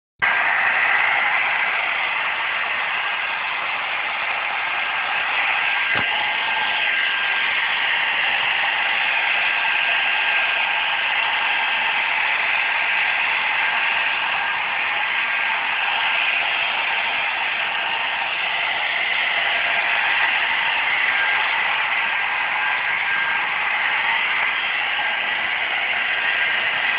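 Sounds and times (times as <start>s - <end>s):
hair dryer blowing: 0.2s - 26.9s
hair dryer click: 5.9s - 6.4s.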